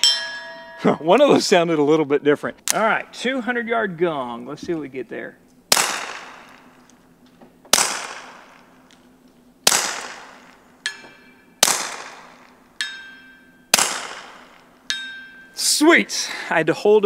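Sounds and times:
distant steel gong ringing: 0.0 - 1.3
suppressed gunshots with echo: 5.7 - 6.9, 7.7 - 8.9, 9.6 - 10.9, 11.6 - 12.7, 13.7 - 14.9.

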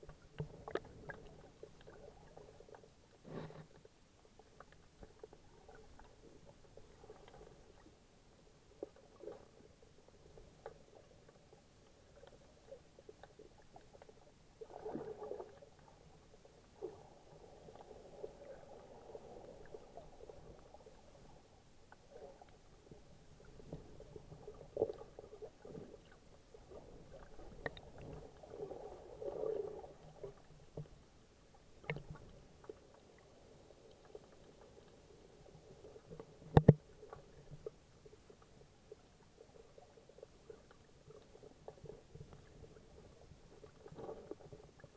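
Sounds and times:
muffled underwater water surging: 0.0 - 44.9
faint clicks: 36.1 - 37.8.

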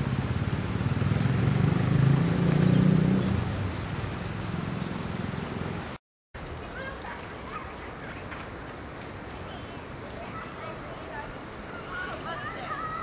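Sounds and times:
motor vehicle passing: 0.0 - 6.0
small birds chirping: 0.8 - 1.5, 4.7 - 6.0, 6.6 - 13.0.

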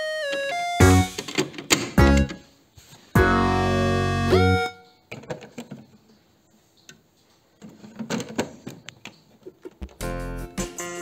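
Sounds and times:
electronic toy jingle: 3.2 - 4.9
plastic clicking and rattling: 5.1 - 6.2, 7.6 - 10.0.

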